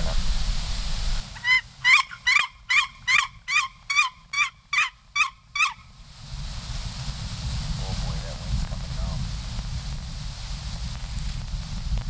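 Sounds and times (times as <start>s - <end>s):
turkey call hen yelps: 1.4s - 5.9s.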